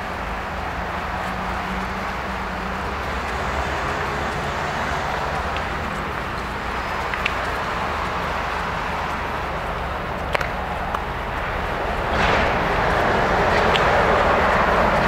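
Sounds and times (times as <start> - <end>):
faint clicks: 0.0 - 15.0
outdoor background noise: 0.0 - 15.0
low rumble: 5.2 - 15.0.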